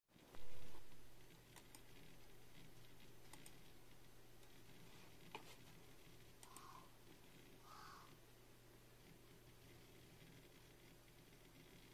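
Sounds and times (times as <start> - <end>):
low steady hum: 0.2 - 11.9
computer mouse clicks: 1.3 - 5.7, 6.3 - 7.6.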